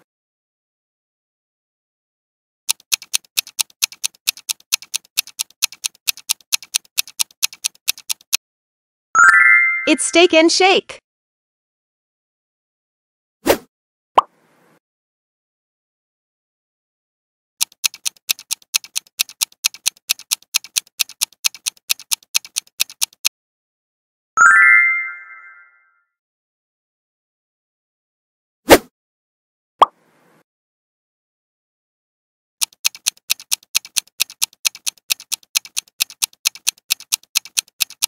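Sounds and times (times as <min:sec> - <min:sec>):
fast clock-like ticking: 0:02.7 - 0:08.4, 0:17.6 - 0:23.3, 0:32.6 - 0:38.0.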